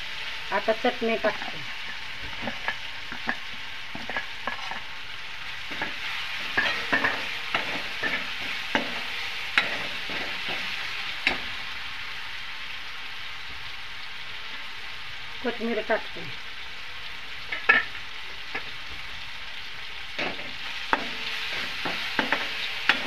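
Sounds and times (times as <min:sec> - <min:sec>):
spices sizzling in hot oil: 0:00.0 - 0:23.0
ladle scraping and knocking pan: 0:01.4 - 0:04.9, 0:05.7 - 0:11.6, 0:20.2 - 0:23.0.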